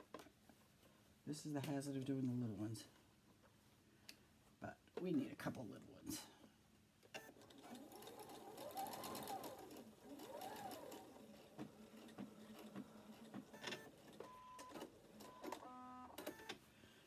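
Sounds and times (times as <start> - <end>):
sewing machine motor whine: 7.2 - 16.3
sewing machine stitching: 7.2 - 16.5.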